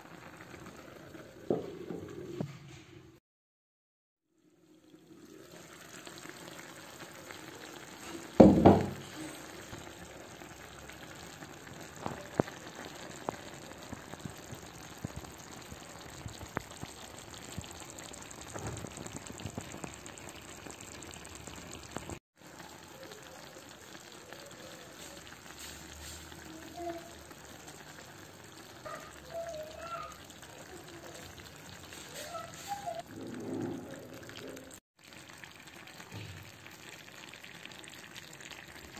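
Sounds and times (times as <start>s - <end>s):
stew sizzling and bubbling: 0.0s - 3.2s, 4.2s - 38.9s
loud knock: 8.4s - 9.0s.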